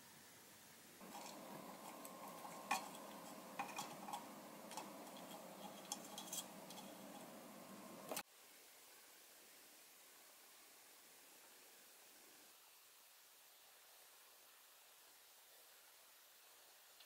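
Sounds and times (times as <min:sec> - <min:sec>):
small ticks and crackles: 0:01.0 - 0:08.2
soldering iron sizzle: 0:01.0 - 0:08.2.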